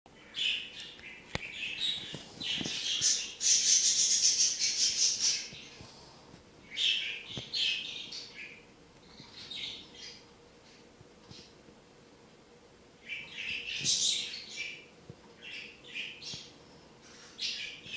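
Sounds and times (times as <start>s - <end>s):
budgerigar chirping and twittering: 0.3s - 5.8s, 6.7s - 8.6s, 13.0s - 17.9s.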